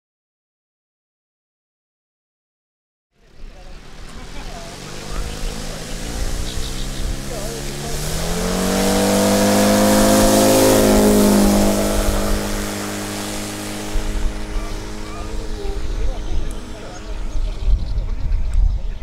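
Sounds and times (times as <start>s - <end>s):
model airplane engine: 3.2s - 19.0s
wind rumble: 3.3s - 19.0s.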